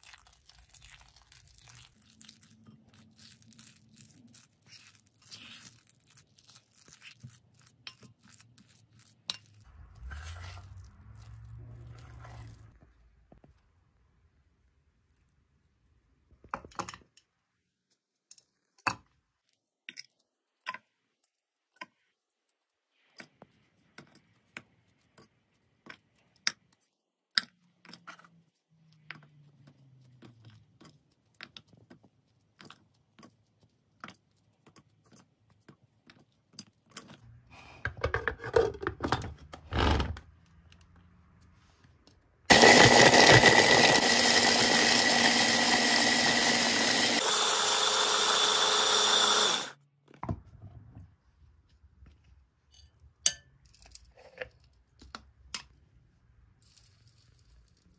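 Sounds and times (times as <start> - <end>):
cookies cracking and crumbling: 0.0 - 9.8, 53.6 - 55.8
electric food chopper grinding: 42.5 - 49.8.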